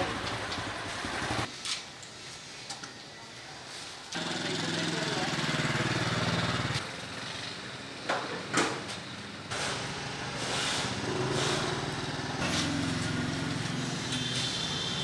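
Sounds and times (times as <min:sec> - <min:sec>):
small engine running: 0:04.2 - 0:07.8, 0:09.6 - 0:15.0.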